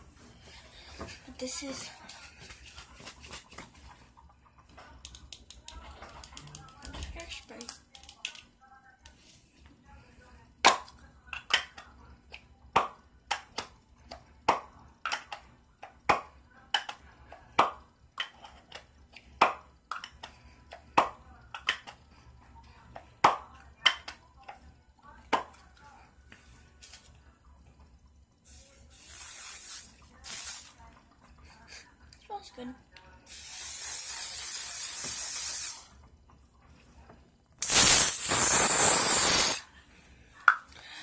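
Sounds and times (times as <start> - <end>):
metallic clicks on aerosol can: 37.6 - 39.6.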